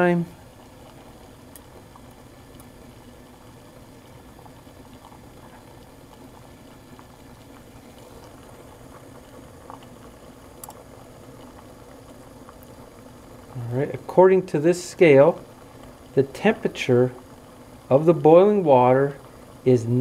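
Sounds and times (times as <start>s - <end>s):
water boiling and bubbling: 0.0s - 20.0s
faint ticks: 0.6s - 2.8s, 4.4s - 12.8s.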